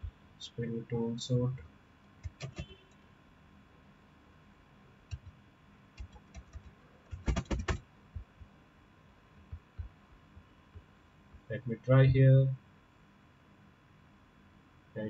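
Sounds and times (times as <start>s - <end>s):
computer keyboard and mouse clicks: 2.2s - 2.8s, 5.1s - 5.4s, 6.0s - 7.8s.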